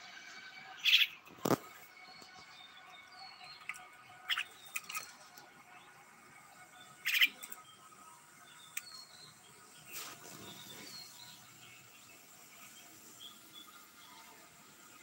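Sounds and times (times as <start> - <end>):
bird squawks and chirps: 0.7 - 1.2, 4.1 - 5.1, 6.9 - 7.5.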